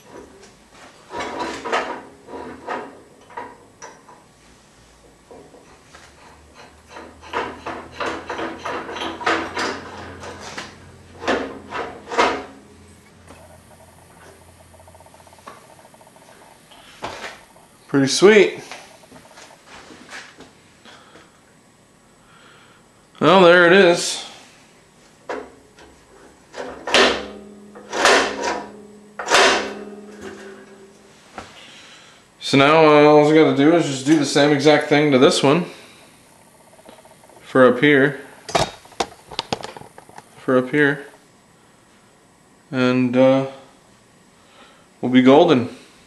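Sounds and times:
metal scraping clunks with ringing: 5.3s - 16.4s.

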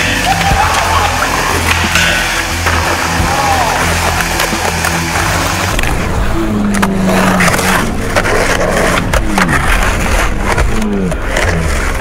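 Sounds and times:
skateboard clacks: 0.0s - 6.0s
skateboard wheels rolling on concrete: 0.0s - 12.0s.

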